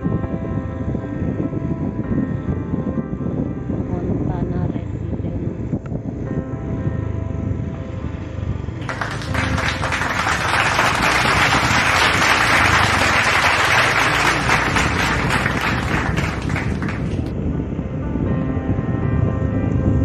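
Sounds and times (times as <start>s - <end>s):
hands clapping: 8.8s - 17.3s.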